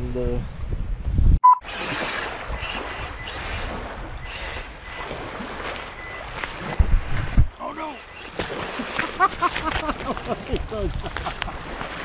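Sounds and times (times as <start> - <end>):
wind on microphone: 0.0 - 12.0
short electronic beep: 1.4 - 1.7, 5.8 - 6.4
small waves on pebbly beach: 1.6 - 6.8, 7.6 - 12.0.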